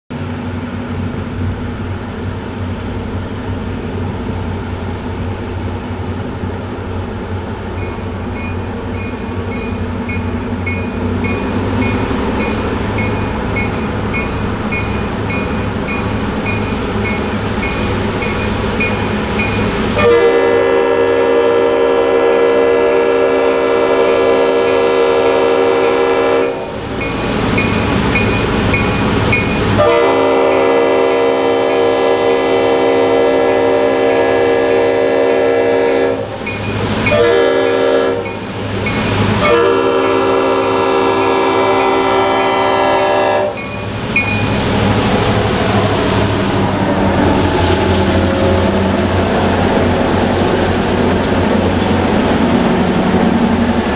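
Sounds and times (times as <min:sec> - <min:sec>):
diesel locomotives rumbling: 0:00.1 - 0:53.9
train air horn blasts: 0:20.0 - 0:26.8, 0:29.8 - 0:36.4, 0:37.1 - 0:38.3, 0:39.4 - 0:43.7.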